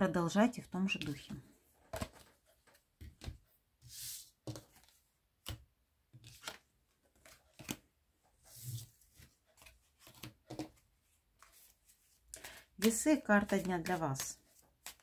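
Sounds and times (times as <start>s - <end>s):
cards snapping and tapping: 5.4s - 5.7s, 12.4s - 15.0s.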